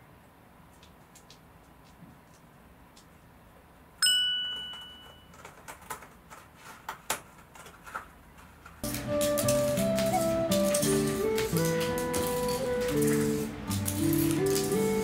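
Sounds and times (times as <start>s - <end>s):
bright ding: 4.0s - 5.3s
cat scratching with claws: 5.3s - 15.0s
light music: 8.8s - 15.0s.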